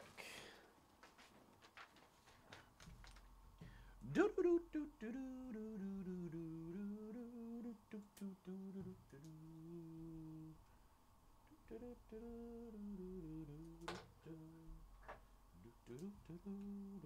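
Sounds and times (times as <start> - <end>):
man humming a tune: 4.0 - 10.7, 11.5 - 17.0.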